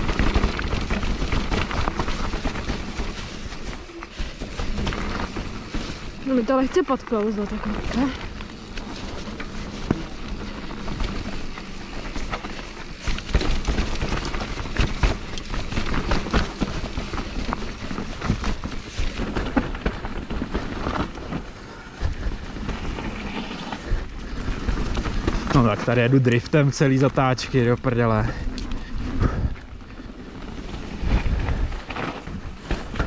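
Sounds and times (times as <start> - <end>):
bike knocks and rattles: 0.0 - 26.3, 28.0 - 33.0
bike tyres on muddy trail: 0.0 - 33.0.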